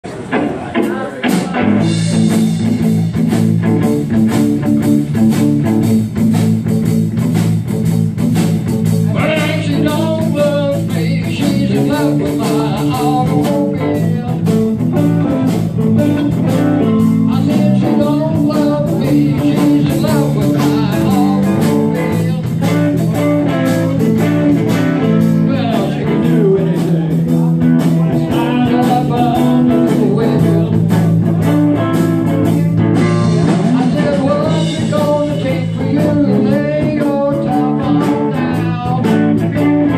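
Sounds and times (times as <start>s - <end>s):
blues-rock band playing: 0.1s - 39.9s
lead guitar bending pitch: 9.1s - 36.6s.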